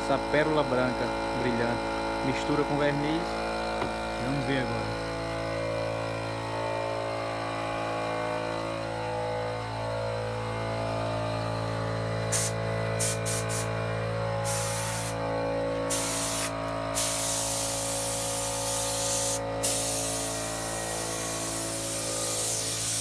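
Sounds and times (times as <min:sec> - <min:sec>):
steady hum: 0:00.0 - 0:23.0
paint spray gun hissing: 0:12.3 - 0:13.8, 0:14.4 - 0:15.3, 0:15.9 - 0:23.0.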